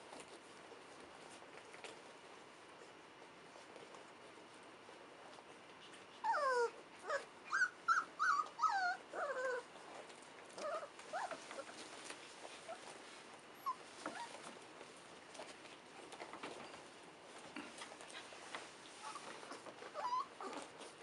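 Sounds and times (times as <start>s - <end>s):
puppies squealing and whimpering: 6.2s - 9.6s, 19.0s - 20.7s.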